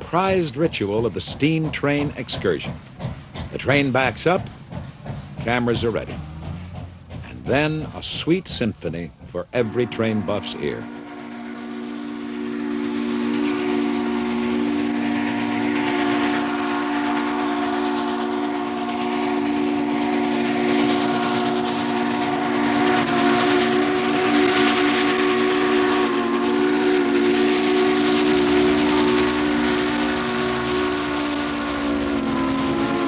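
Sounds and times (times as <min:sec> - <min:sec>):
steam hissing: 0:00.0 - 0:33.0
steam locomotive chime whistle: 0:09.6 - 0:33.0.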